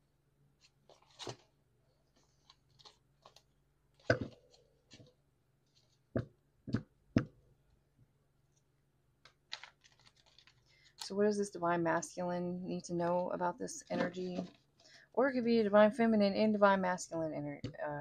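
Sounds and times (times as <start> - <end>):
cards being shuffled: 0.6 - 1.5, 2.1 - 6.0, 9.2 - 11.1.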